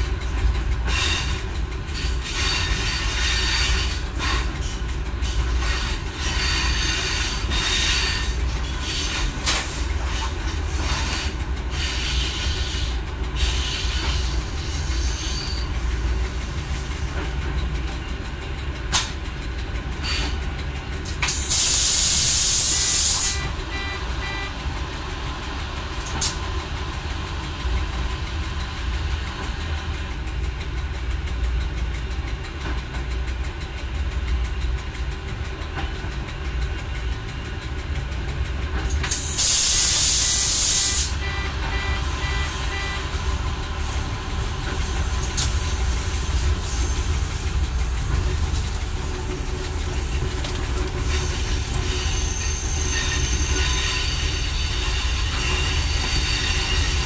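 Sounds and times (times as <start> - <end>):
railcar low rumble: 0.0 - 57.0
wheels clicking on track: 0.0 - 57.0
loud hiss of air: 21.2 - 23.4, 39.1 - 41.2.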